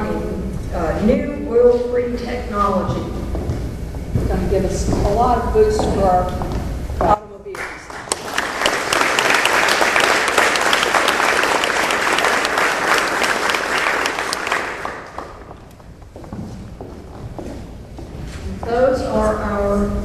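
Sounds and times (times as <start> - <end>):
audience applauding: 7.6 - 15.6.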